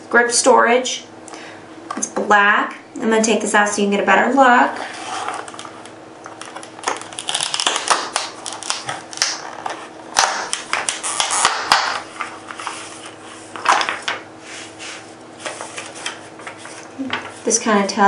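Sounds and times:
plastic blister pack crackling: 5.0 - 14.2
plastic snapping: 5.4 - 12.0.

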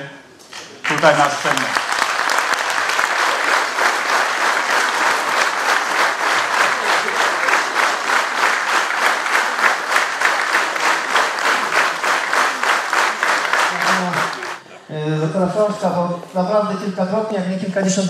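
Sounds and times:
audience applause: 0.5 - 14.6.

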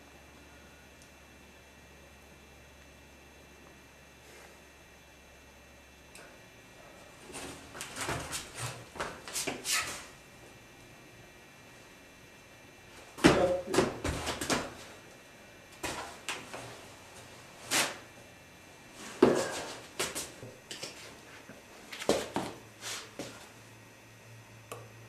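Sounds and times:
shoes scuffing: 7.2 - 10.1, 13.0 - 15.0, 15.8 - 18.0, 19.0 - 23.5.

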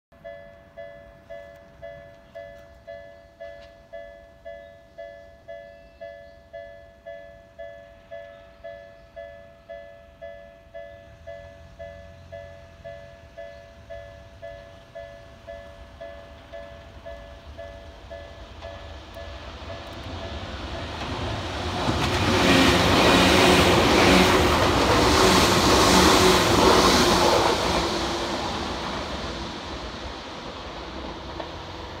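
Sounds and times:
level crossing warning bell: 0.2 - 20.4
train wheel and rail noise: 0.2 - 32.0
train motor hum: 18.4 - 32.0.

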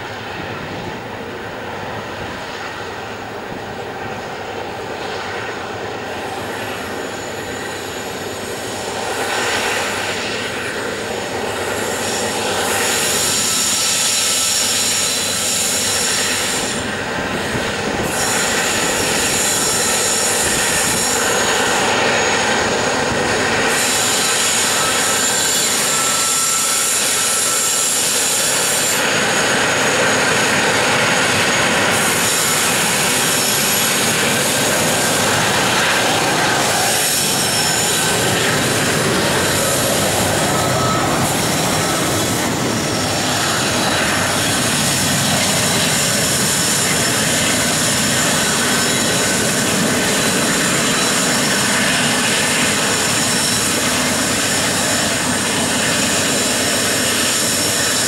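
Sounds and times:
diesel locomotives working hard: 0.0 - 58.0
thin wheel squeal: 23.6 - 29.2.

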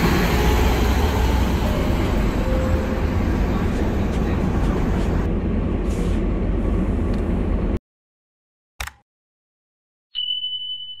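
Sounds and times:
short click: 8.8 - 9.0.

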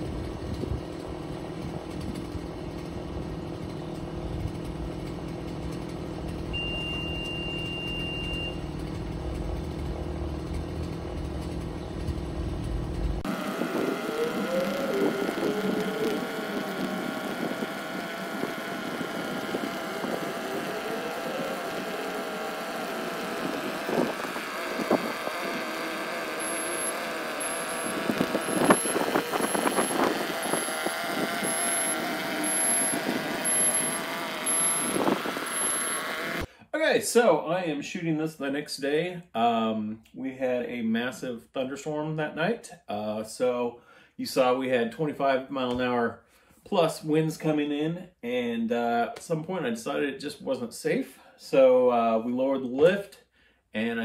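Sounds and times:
boom lift power unit running: 0.0 - 36.5
high motion alarm beeps: 6.6 - 8.6
wind buffeting microphone: 13.3 - 26.2, 27.7 - 35.7.

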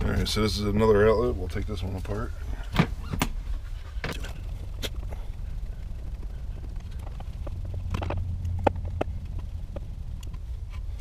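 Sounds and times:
low rumble: 3.3 - 11.0.

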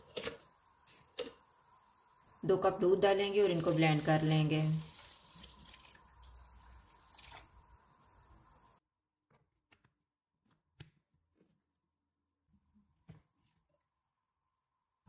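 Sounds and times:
milk pouring into plastic jug: 4.8 - 7.7.

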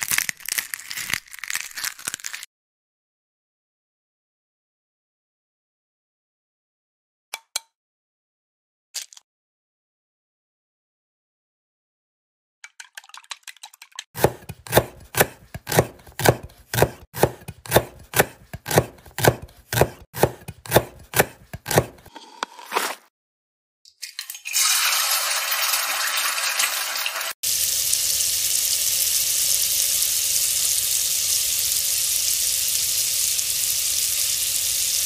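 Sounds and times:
knife chopping on wooden board: 14.2 - 23.0
egg sizzling in frying pan: 24.5 - 35.0.

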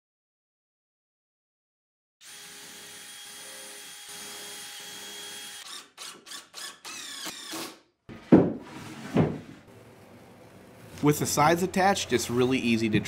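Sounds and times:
power drill whining: 2.2 - 7.8
impact driver trigger bursts: 5.5 - 7.8
loud thump: 8.3 - 9.6.

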